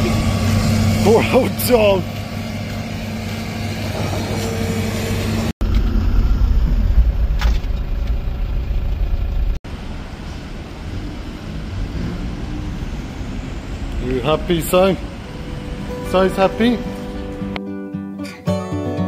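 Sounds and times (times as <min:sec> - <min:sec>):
engine idling hum: 0:00.0 - 0:17.5.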